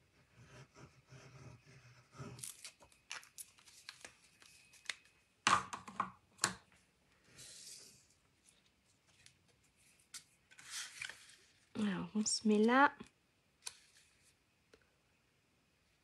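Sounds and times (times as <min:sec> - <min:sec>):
paper rustling and scraping: 0:07.3 - 0:11.7.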